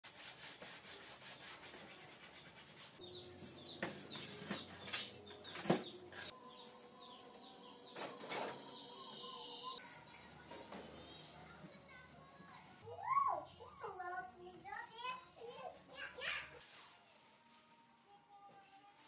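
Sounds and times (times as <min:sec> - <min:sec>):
plastic racks and utensils clattering: 0:03.4 - 0:06.3, 0:07.9 - 0:08.8.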